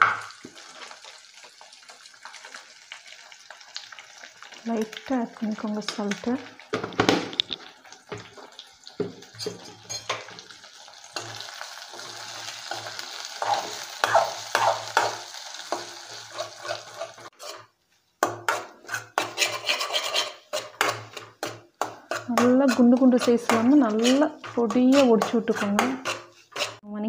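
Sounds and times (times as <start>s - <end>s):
eggs sizzling in oil: 0.0s - 26.8s
metal spoon scraping pan: 9.3s - 10.3s, 11.2s - 26.8s.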